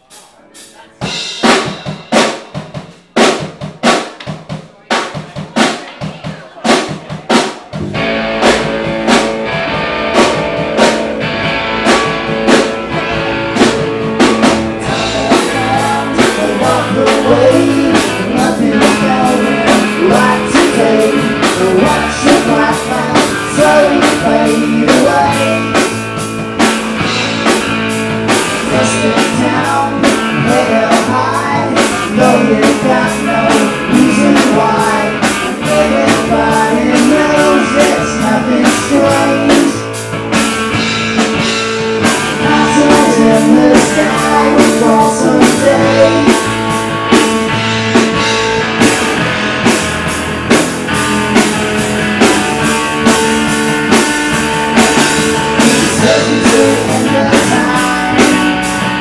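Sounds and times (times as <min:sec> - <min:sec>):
bass guitar: 0:00.0 - 0:59.0
drum kit: 0:00.0 - 0:59.0
electric guitar: 0:07.8 - 0:59.0
man singing: 0:14.7 - 0:26.0, 0:28.4 - 0:40.0, 0:42.3 - 0:46.7, 0:55.6 - 0:58.8.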